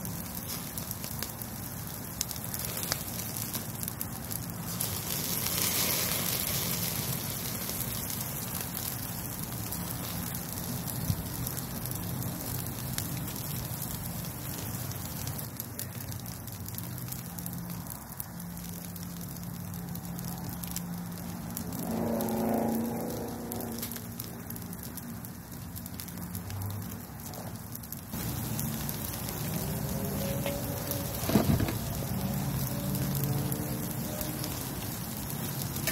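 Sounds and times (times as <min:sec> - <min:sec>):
steaks sizzling on a grill: 0:00.0 - 0:15.4, 0:28.2 - 0:35.9
wood fire crackling: 0:00.0 - 0:35.9.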